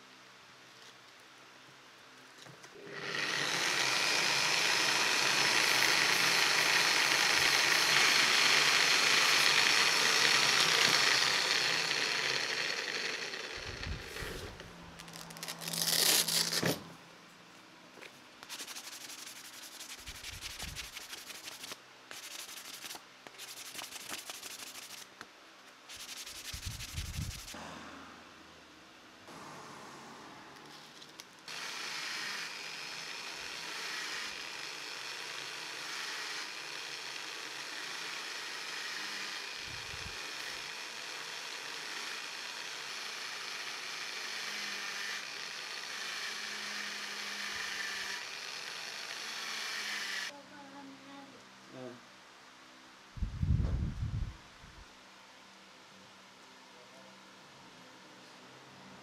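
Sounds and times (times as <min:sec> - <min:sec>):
electric polisher sanding wood: 0:02.7 - 0:14.7, 0:18.5 - 0:25.0, 0:25.9 - 0:27.6, 0:31.5 - 0:50.3
scraping and handling noises: 0:14.0 - 0:27.6, 0:30.6 - 0:31.5.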